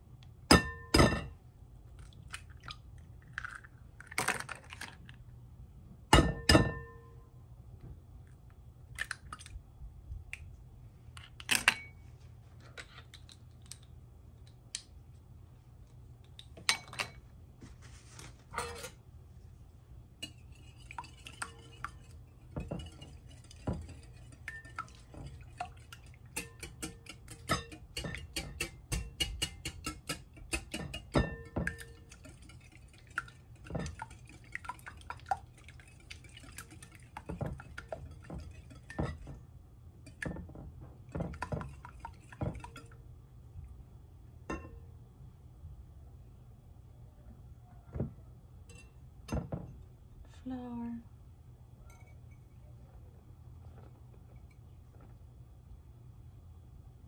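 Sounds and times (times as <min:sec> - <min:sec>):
whisk clinking against glass bowl: 0:20.2 - 0:39.4.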